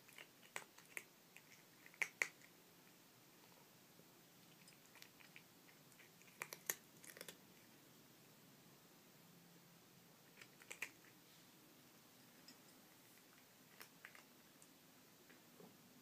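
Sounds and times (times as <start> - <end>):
cat crunching dry kibble: 0.0 - 2.5, 4.4 - 7.4, 10.3 - 11.2, 13.2 - 14.7.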